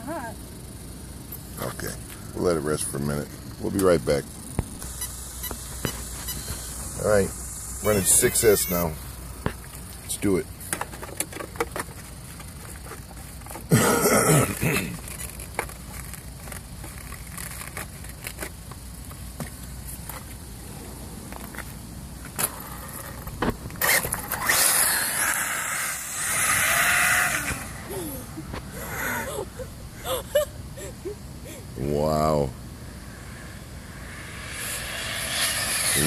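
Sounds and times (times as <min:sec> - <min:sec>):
electric model car driving: 0:22.3 - 0:29.2, 0:32.8 - 0:36.0
loud burst of noise: 0:32.8 - 0:36.0.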